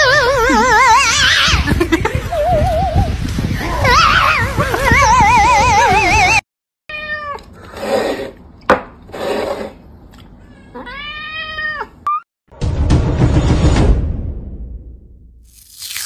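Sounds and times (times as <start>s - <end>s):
cat meowing: 10.8s - 12.2s.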